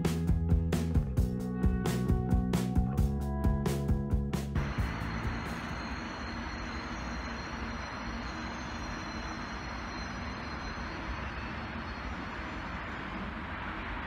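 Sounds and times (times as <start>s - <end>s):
city traffic: 4.6s - 9.9s
faint high whine: 4.6s - 14.0s
railway station rumble and hiss: 4.6s - 14.0s.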